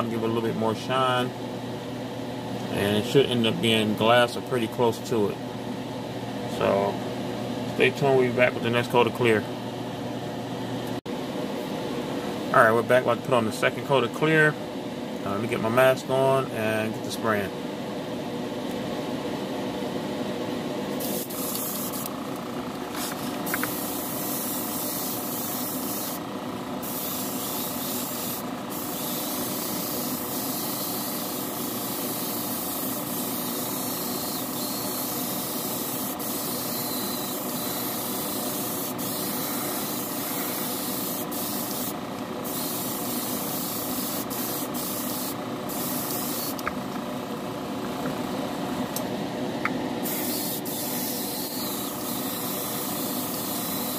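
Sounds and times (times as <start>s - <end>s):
machine hum: 0.0s - 53.9s
spray paint hissing: 21.0s - 22.1s, 23.0s - 26.2s, 26.8s - 46.6s, 50.0s - 53.9s.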